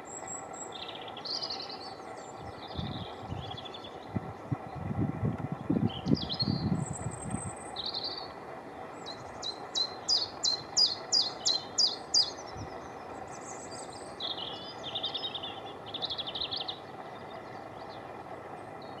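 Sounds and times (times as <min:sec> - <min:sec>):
chiffchaff singing: 0:05.8 - 0:19.0.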